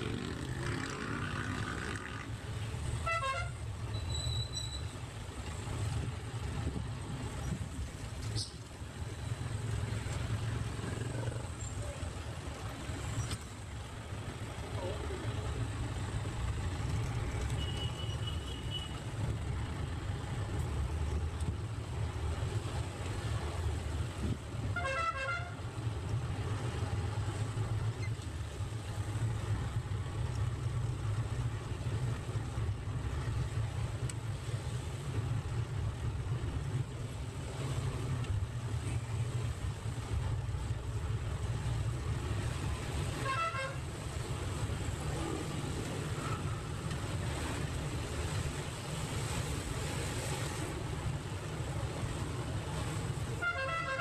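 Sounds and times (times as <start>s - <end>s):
diesel engine and road rumble: 0.0s - 54.0s
wavering vehicle horn: 3.0s - 3.6s, 24.8s - 25.6s, 43.2s - 43.8s, 53.4s - 54.0s.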